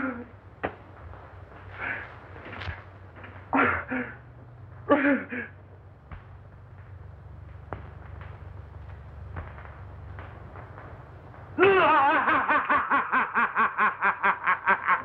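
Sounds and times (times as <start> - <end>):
film soundtrack hum and hiss: 0.0 - 15.0.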